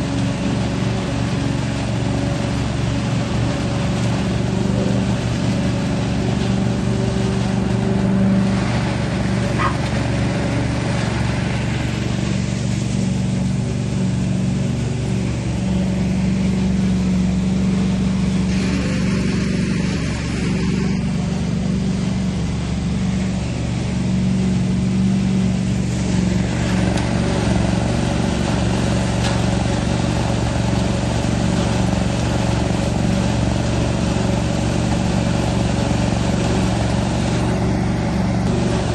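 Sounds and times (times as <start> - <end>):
leaf vacuum engine running: 0.0 - 38.9
intake hose rushing hiss: 2.4 - 37.7.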